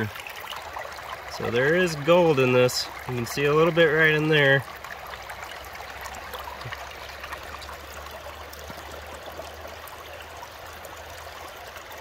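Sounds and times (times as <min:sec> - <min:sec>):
water running down a sluice box: 0:00.0 - 0:12.0.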